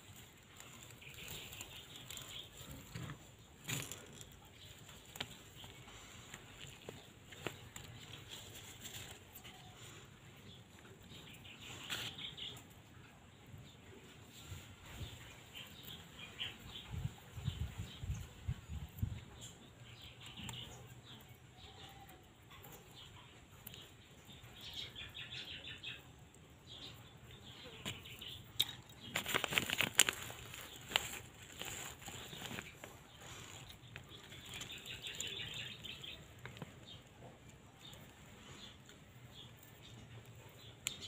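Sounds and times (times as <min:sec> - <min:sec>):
plastic bag crackling: 0:00.0 - 0:09.5, 0:27.8 - 0:36.7.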